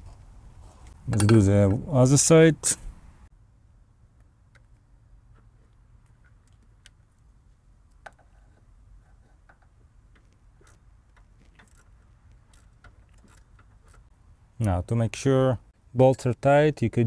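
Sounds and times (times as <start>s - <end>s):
metal tool contact: 8.1s - 14.1s.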